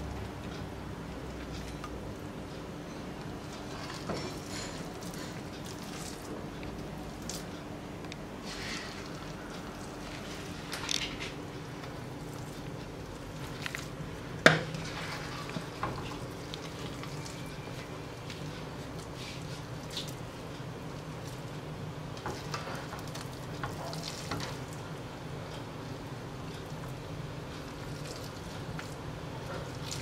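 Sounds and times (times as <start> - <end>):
steady low hum: 0.0 - 30.0
spatula scraping a frying pan: 8.4 - 9.1, 14.7 - 16.2.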